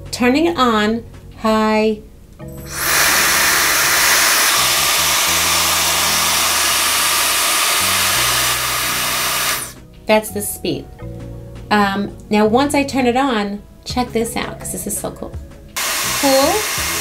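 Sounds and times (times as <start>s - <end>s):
hair dryer blowing air: 2.7s - 9.8s, 15.8s - 17.0s.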